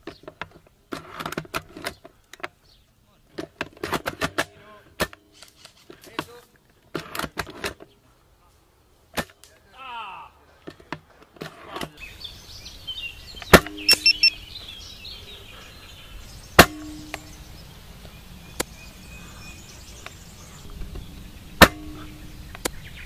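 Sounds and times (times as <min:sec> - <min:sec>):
airsoft rifle shots: 0:21.6 - 0:22.2.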